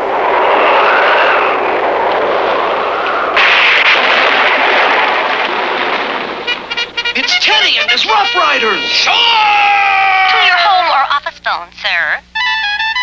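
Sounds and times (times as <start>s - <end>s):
cartoon explosion rumbling blast: 0.0s - 7.2s.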